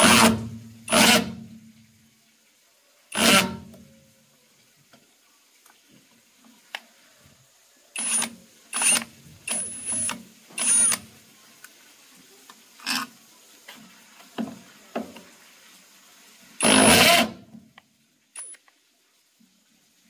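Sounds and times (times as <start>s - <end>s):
cordless drill whining: 3.2s - 3.5s, 8.0s - 11.0s, 16.6s - 17.4s.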